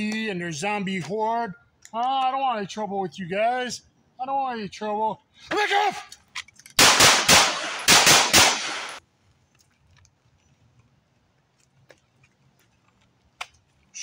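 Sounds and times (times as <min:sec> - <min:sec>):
pistol shots with echo: 0:06.8 - 0:09.0.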